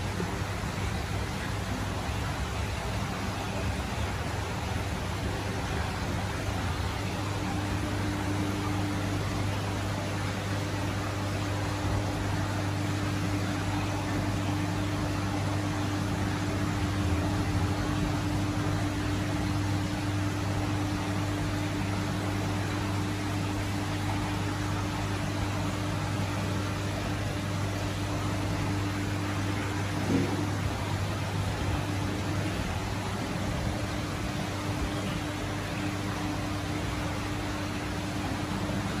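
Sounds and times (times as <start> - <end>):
equipment hum and hiss: 0.0 - 39.0.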